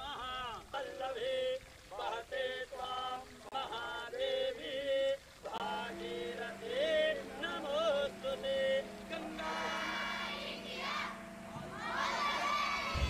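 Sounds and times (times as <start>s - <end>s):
steady low hum: 0.0s - 13.0s
voices chanting a prayer: 0.0s - 13.0s.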